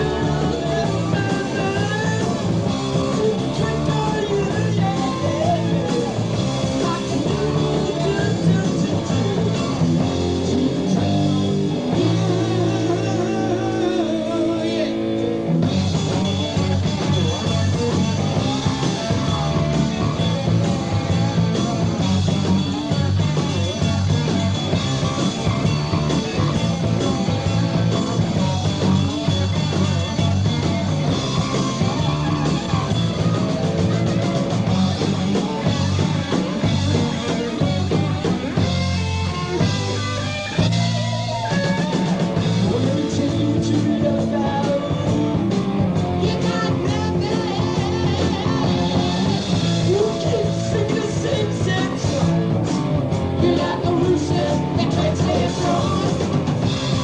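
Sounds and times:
person singing: 0.0 - 11.0, 11.8 - 15.3, 39.8 - 52.6, 53.3 - 57.0
rock band playing live: 0.0 - 57.0
sustained guitar or keyboard notes: 0.0 - 57.0.

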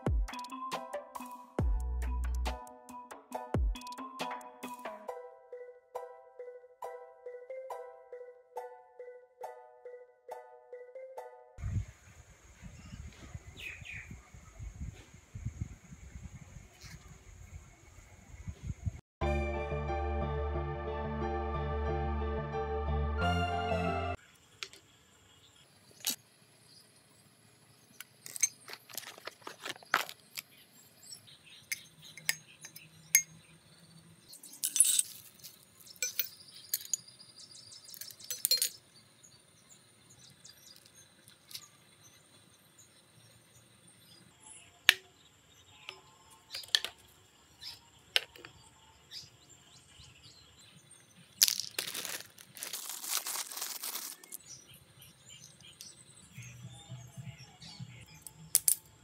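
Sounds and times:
bicycle parts clinking on tile floor: 34.3 - 37.0, 37.9 - 38.8.

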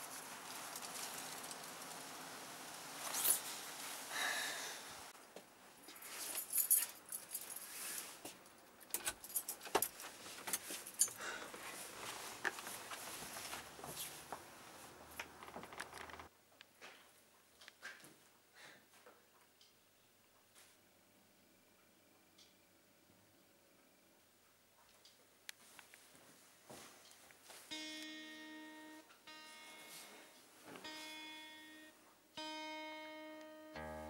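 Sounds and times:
keys jangling: 5.9 - 7.8, 8.8 - 11.2.

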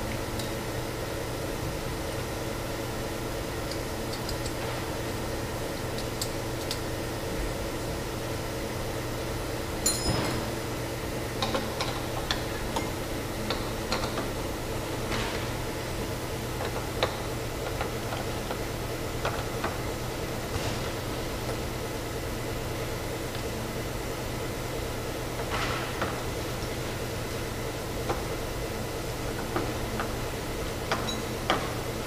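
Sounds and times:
ringing clink: 9.8 - 10.4.

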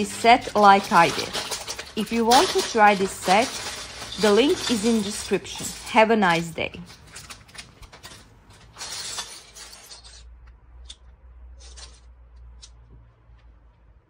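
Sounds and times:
plastic bricks clattering on wood: 0.0 - 10.2.

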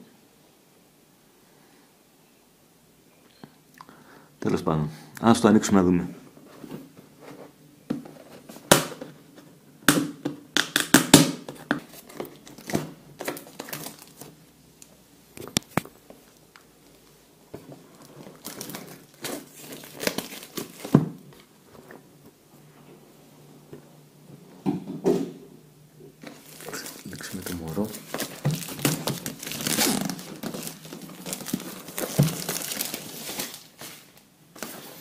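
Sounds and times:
plastic wrapping crinkling and tearing: 11.8 - 14.4, 15.6 - 21.5, 26.2 - 35.0.

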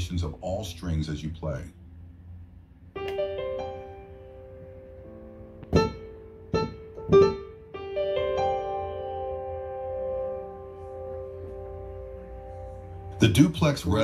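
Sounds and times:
piano chords: 2.7 - 14.0
sharp loud piano notes: 3.0 - 13.6.

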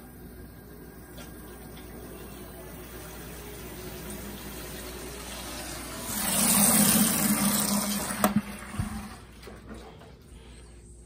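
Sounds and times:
water rushing through hose: 4.3 - 9.1.

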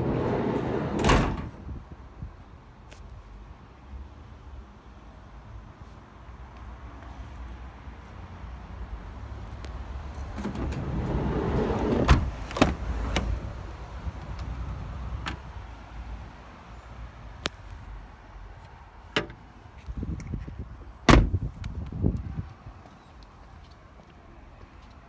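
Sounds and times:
van doors and panels clicking: 0.0 - 1.6, 10.3 - 13.5, 21.1 - 21.4.

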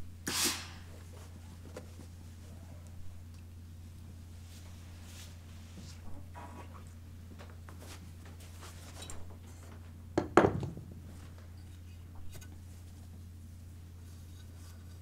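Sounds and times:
steady low hum: 0.0 - 15.0
wooden tools knocking on board: 10.2 - 10.8.

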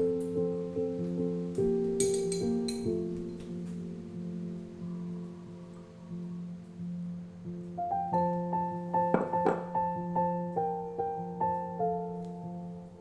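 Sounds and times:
soft piano notes: 0.0 - 13.0.

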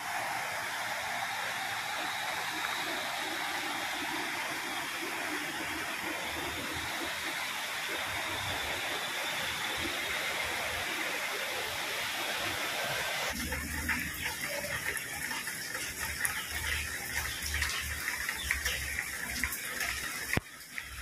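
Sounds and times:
rushing river water: 0.0 - 21.0.

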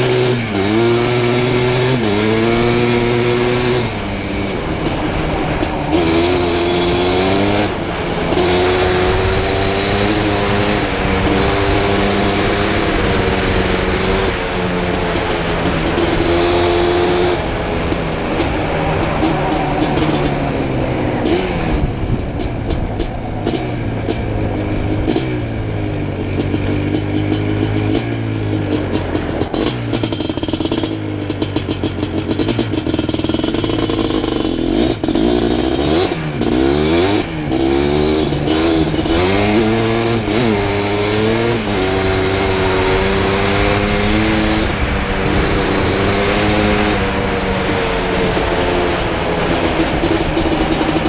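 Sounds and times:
two-stroke quad engine revving: 0.0 - 51.0.

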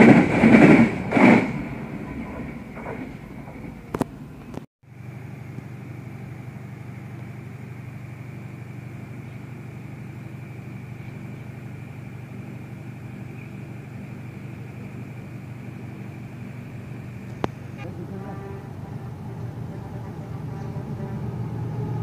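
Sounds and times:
low engine drone: 0.0 - 22.0
faint high whine: 4.4 - 20.8.

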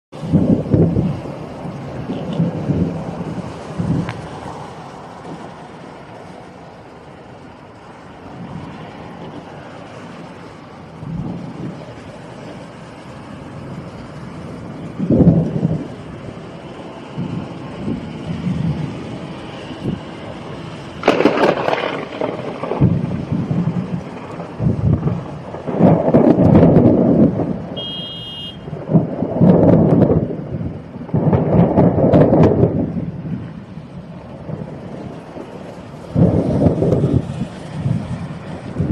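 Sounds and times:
heavy rain hissing: 0.2 - 38.9
thunder rumbling: 0.2 - 38.9.

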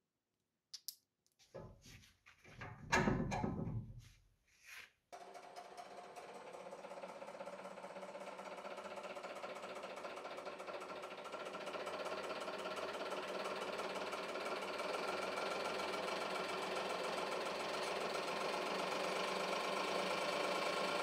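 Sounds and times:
hydraulic pump pulsing: 5.2 - 21.0.

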